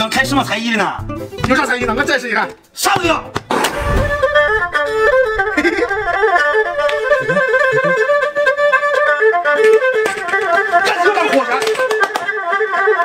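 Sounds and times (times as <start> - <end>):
bowed fiddle playing quick melody: 3.5 - 13.0.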